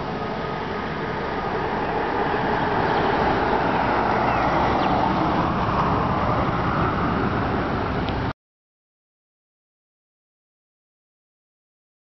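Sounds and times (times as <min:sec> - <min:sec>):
jet engines rushing: 0:00.0 - 0:08.3.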